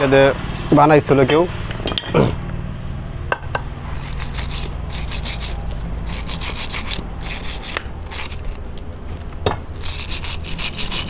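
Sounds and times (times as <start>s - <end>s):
steel blade scraping metal: 3.8s - 8.6s, 9.8s - 11.0s.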